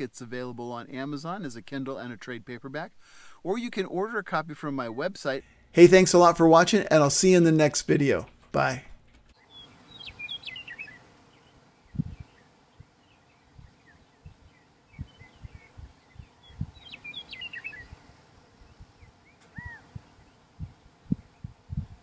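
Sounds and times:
small birds twittering: 0:09.3 - 0:22.0
low thumps: 0:19.6 - 0:22.0.

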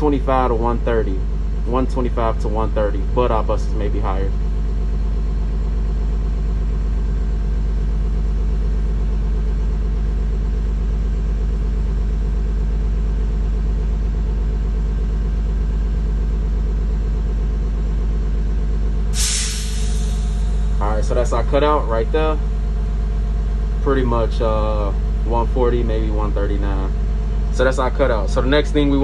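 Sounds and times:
diesel engine idling: 0:00.0 - 0:29.0.

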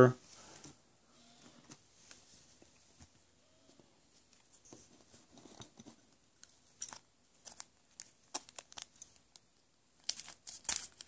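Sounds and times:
foil wrapper crinkling: 0:07.4 - 0:09.2, 0:10.0 - 0:11.0.

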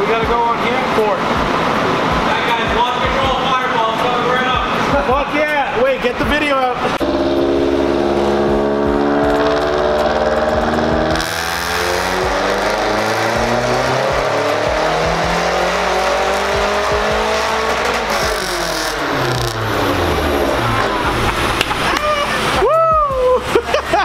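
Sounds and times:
car engine revving on dyno: 0:06.8 - 0:22.6.

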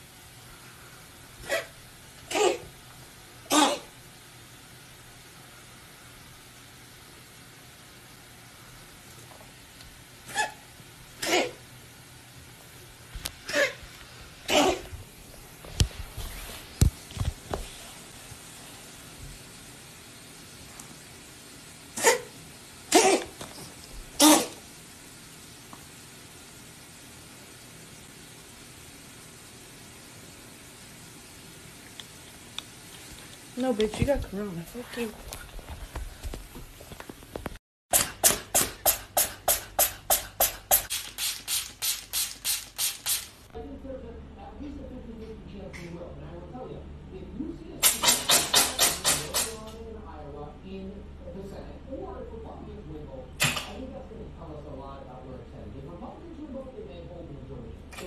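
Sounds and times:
cat sneezing: 0:01.4 - 0:02.7, 0:03.4 - 0:04.0, 0:10.2 - 0:10.6, 0:11.2 - 0:11.7, 0:14.4 - 0:15.0, 0:22.0 - 0:23.6, 0:24.2 - 0:24.6, 0:47.8 - 0:49.5
spray bottle hissing sprays: 0:37.9 - 0:43.5, 0:47.8 - 0:49.6.

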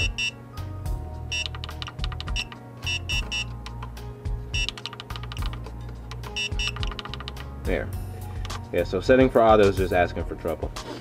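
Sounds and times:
short high-pitched alarm beeps: 0:00.0 - 0:00.4, 0:01.3 - 0:01.5, 0:02.4 - 0:03.5, 0:06.3 - 0:06.8.

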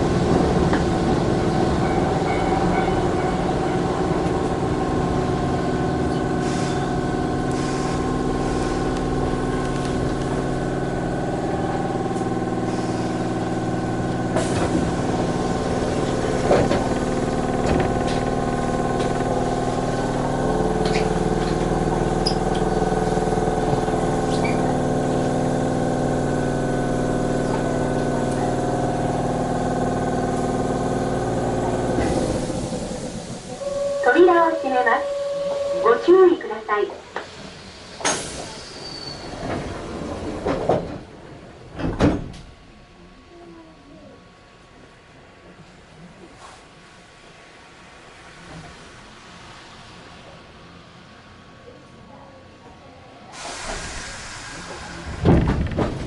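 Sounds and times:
train electrical equipment hum: 0:00.0 - 0:56.0.

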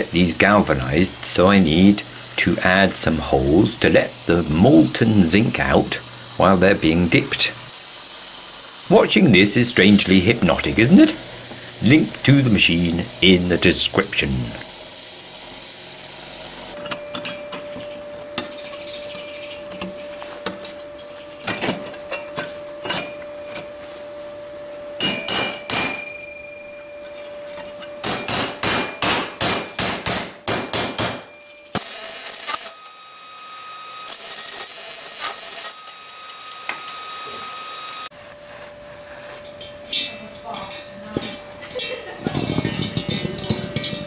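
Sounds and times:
steady hiss: 0:00.0 - 0:16.8.

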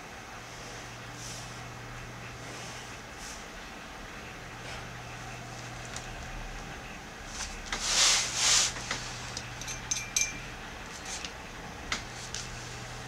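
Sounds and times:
steady low hum: 0:00.0 - 0:13.0
light clicks and clinks: 0:09.6 - 0:10.4.

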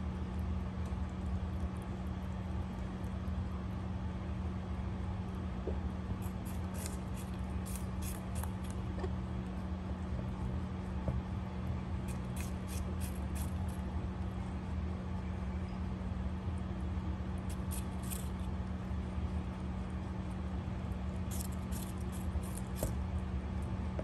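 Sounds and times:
rabbit chewing crunchy food: 0:00.0 - 0:15.4, 0:16.1 - 0:24.0
steady low hum: 0:00.0 - 0:24.0.

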